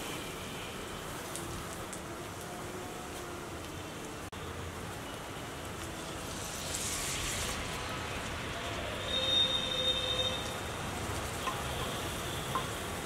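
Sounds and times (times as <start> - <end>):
food sizzling in a pan: 4.7 - 13.0.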